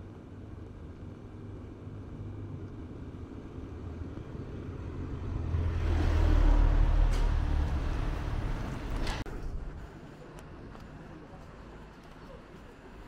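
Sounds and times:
vehicle driving past: 0:03.5 - 0:09.2.

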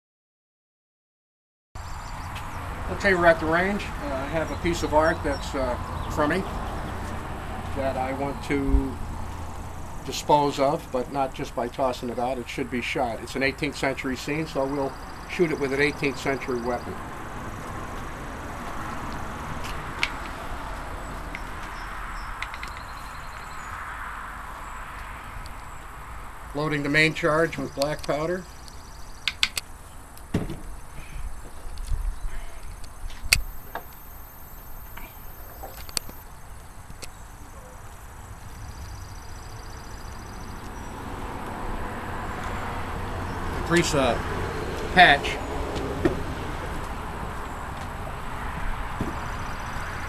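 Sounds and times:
insect ticking call: 0:33.3 - 0:36.2
sharp click: 0:33.3 - 0:36.2
outdoor background hiss: 0:33.3 - 0:37.2.

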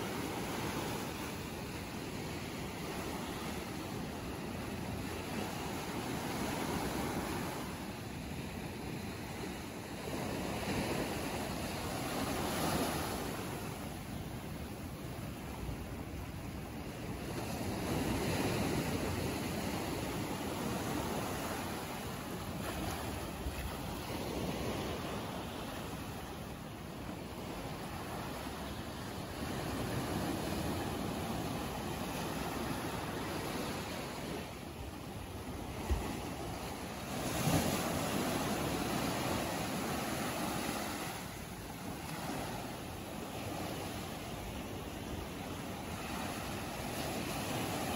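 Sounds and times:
surf washing against rocks: 0:17.5 - 0:47.9.

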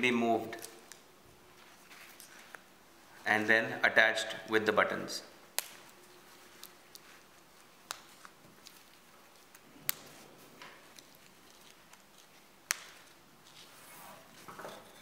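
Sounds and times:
fabric rustling: 0:01.4 - 0:03.3, 0:05.7 - 0:15.0.

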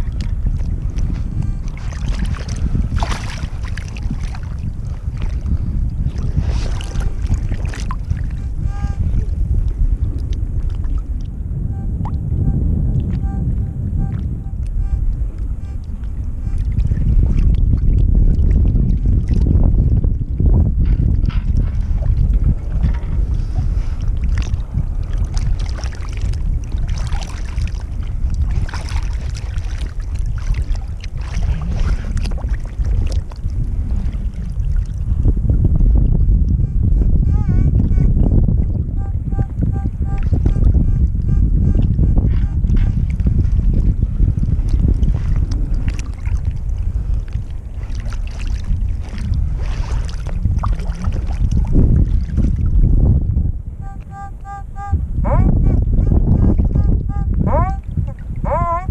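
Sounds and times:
water sloshing and splashing: 0:00.0 - 0:11.3, 0:15.8 - 0:36.1, 0:41.8 - 0:53.0
wind rumble on microphone: 0:00.0 - 0:58.9.

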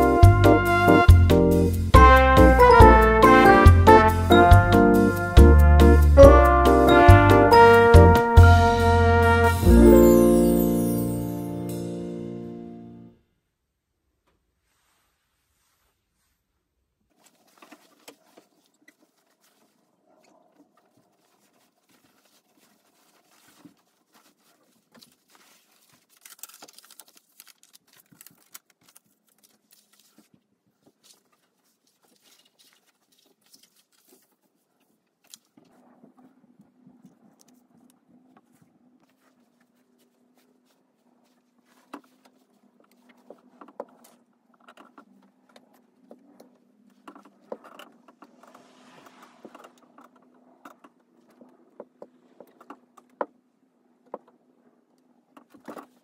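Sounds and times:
cloth and paper rustling: 0:14.5 - 0:36.1, 0:38.2 - 0:51.7.

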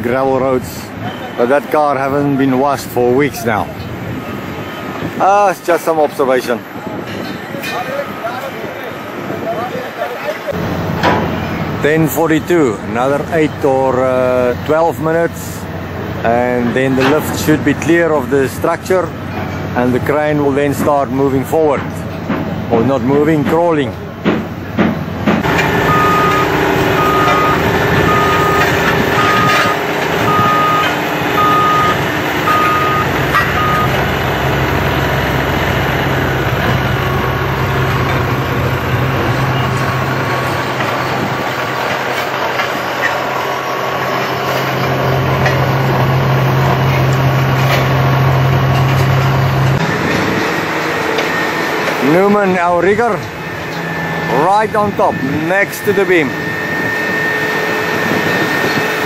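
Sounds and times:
heavy construction machinery: 0:00.0 - 0:59.0
low steady engine hum: 0:00.0 - 0:59.0
reversing alarm beeping: 0:25.4 - 0:34.1, 0:50.8 - 0:59.0.

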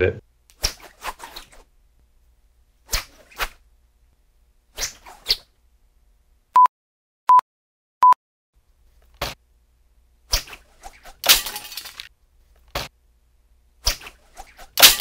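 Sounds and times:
stick whooshes: 0:10.3 - 0:11.2, 0:13.8 - 0:15.0
crash of breaking: 0:11.2 - 0:12.1.

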